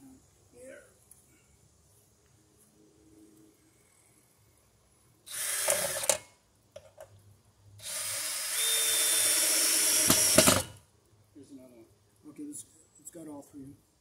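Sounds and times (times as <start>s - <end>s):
cordless drill running: 5.3s - 6.2s, 7.8s - 10.7s.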